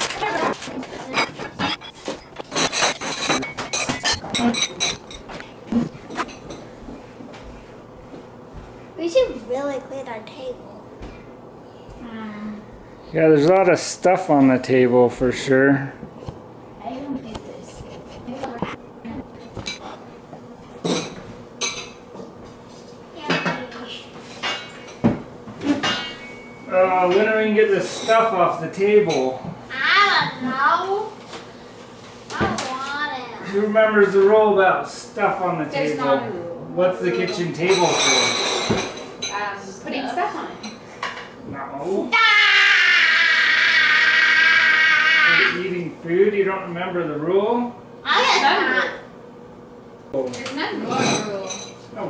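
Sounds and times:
dishes clinking and scraping on table: 0.0s - 6.7s, 17.7s - 20.0s, 20.8s - 28.3s, 37.1s - 39.4s, 50.9s - 51.9s.

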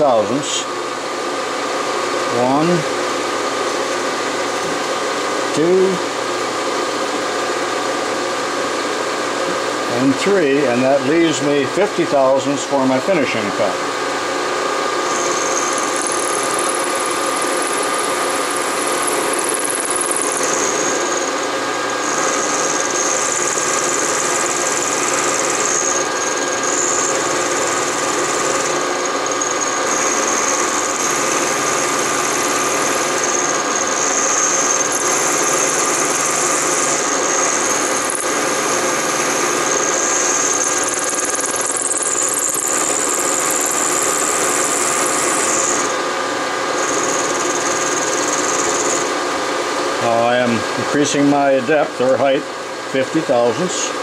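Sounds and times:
high-pitched cutter whine: 0.0s - 54.0s
milling machine cutting metal: 9.2s - 49.4s.

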